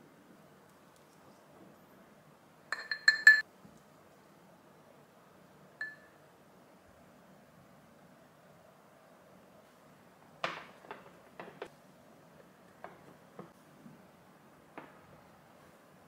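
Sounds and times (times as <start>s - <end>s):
glass bowls clinking: 2.7s - 3.4s, 5.8s - 6.2s.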